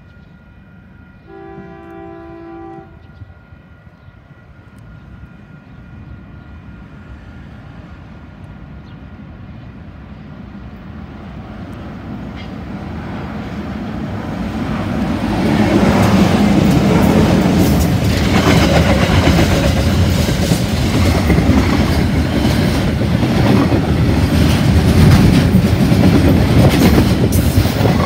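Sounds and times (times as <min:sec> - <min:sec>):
train rumble: 0:00.0 - 0:28.0
train horn blast: 0:01.1 - 0:03.4.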